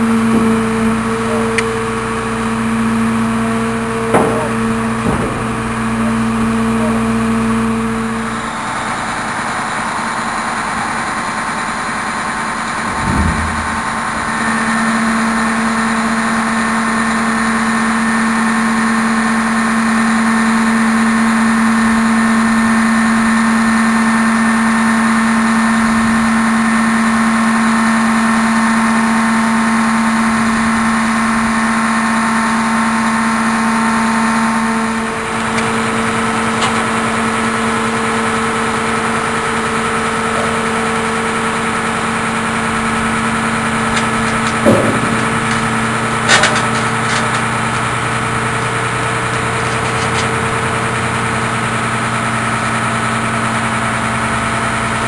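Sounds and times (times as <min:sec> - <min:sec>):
clunks: 0:00.0 - 0:08.6, 0:12.4 - 0:17.6, 0:32.9 - 0:52.7
steady hydraulic hum: 0:00.0 - 0:18.1, 0:31.3 - 0:54.0
refuse truck engine and hydraulics: 0:00.0 - 0:55.0.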